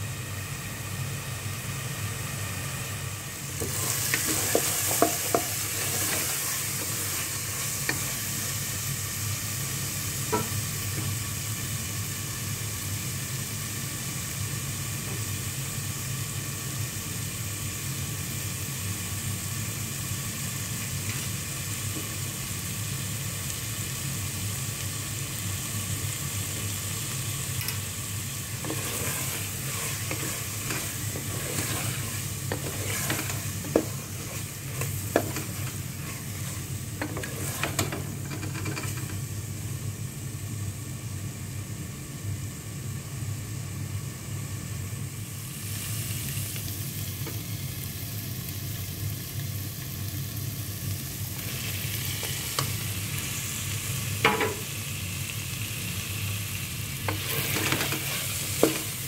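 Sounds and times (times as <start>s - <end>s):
meat sizzling in a pot: 0.0s - 59.0s
spatula scraping a pot: 3.7s - 8.2s, 28.6s - 39.1s, 57.1s - 58.9s.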